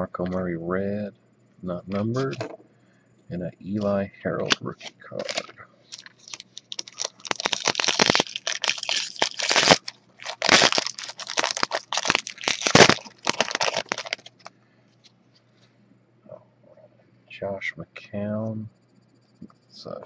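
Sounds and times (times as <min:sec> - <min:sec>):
foil wrapper crinkling and tearing: 0:05.2 - 0:14.5.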